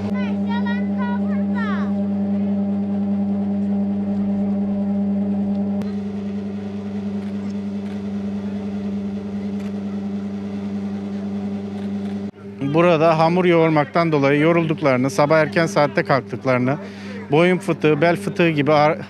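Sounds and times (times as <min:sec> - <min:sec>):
dough-kneading machine motor hum: 0:00.0 - 0:19.0.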